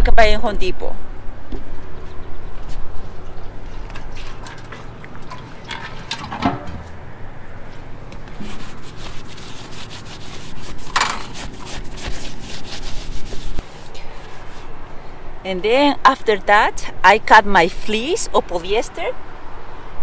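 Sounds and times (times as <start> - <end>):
towel scrubbing rubber roofing: 8.2 - 14.8.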